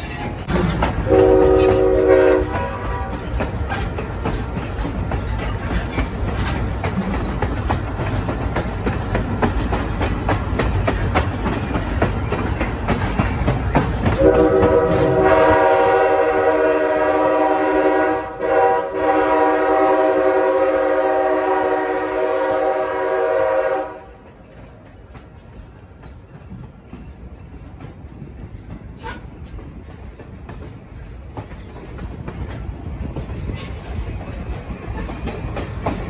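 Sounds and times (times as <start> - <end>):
train rumbling past: 0.0 - 36.0
locomotive air horn chord: 1.1 - 3.2, 14.2 - 24.1.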